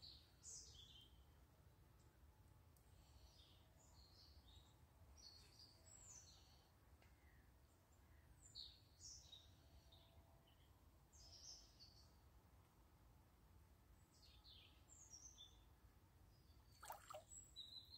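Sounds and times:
faint birdsong chirps: 0.0 - 12.8, 13.9 - 17.9.

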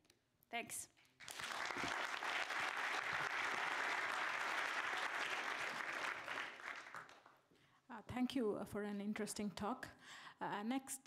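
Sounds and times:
audience applauding: 1.2 - 7.4.

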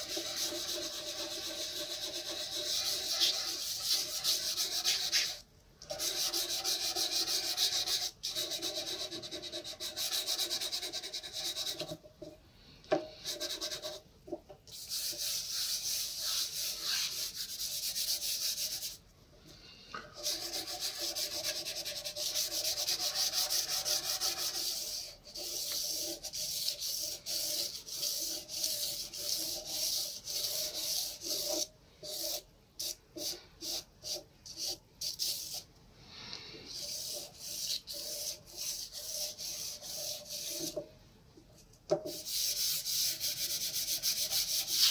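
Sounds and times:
pastel rubbing on paper: 0.0 - 5.4, 14.7 - 19.0, 20.2 - 35.6, 36.7 - 40.8, 42.1 - 44.9.

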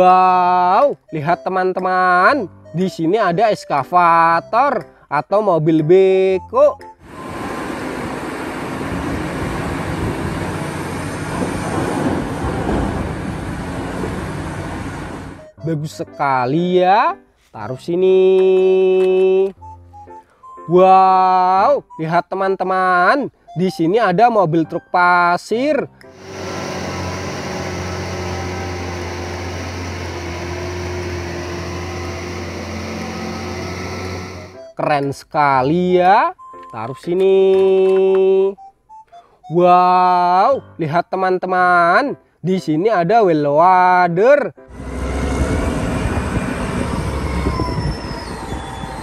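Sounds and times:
excavator heavy mechanical rumble: 7.0 - 15.6, 26.2 - 34.6, 44.7 - 49.0
diesel truck engine droning: 7.0 - 16.2, 26.1 - 34.8, 44.6 - 49.0.

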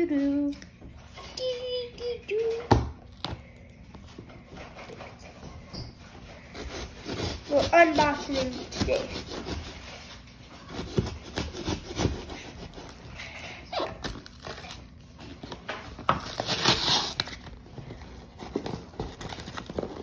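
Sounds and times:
fingers scratching cardboard box: 6.5 - 13.0, 18.4 - 20.0
tape tearing: 13.7 - 17.6, 18.2 - 20.0.

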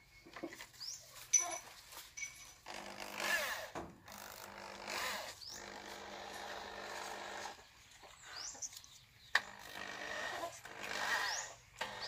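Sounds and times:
short squeaky sliding sounds: 10.2 - 11.6.

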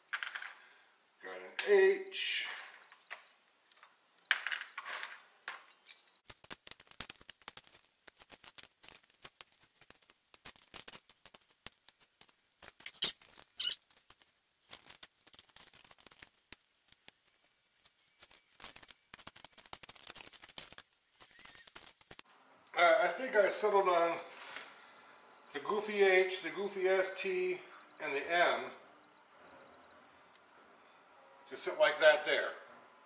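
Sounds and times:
wooden letters clattering: 0.0 - 0.7, 2.4 - 11.4.

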